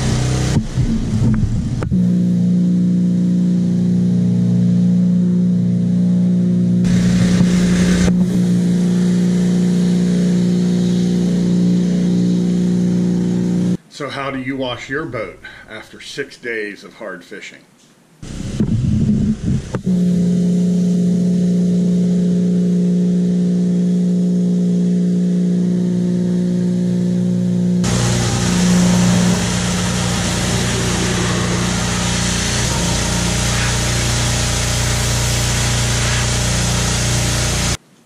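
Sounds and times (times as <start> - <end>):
pressure washer droning: 0.0 - 13.8, 18.2 - 37.8
water spray hissing: 6.9 - 13.8, 27.8 - 37.8.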